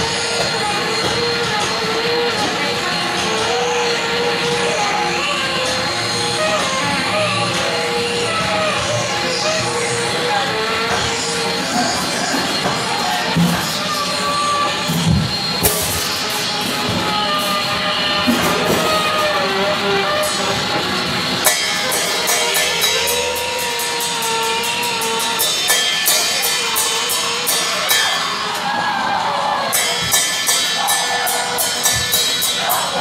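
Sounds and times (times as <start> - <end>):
saxophone playing long notes: 1.0 - 28.4
drum kit with cymbal strikes: 10.9 - 28.7, 29.7 - 33.0.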